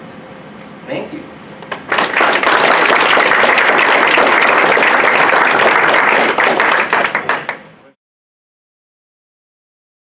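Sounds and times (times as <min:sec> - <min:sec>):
audience applauding: 0:01.6 - 0:07.8.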